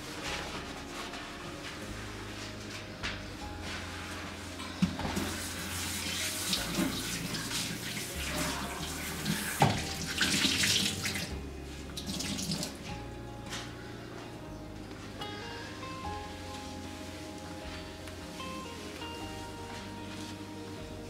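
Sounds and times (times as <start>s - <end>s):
wet cloth wiping countertop: 0.1s - 12.8s
water running into sink: 5.1s - 11.3s, 12.0s - 12.8s.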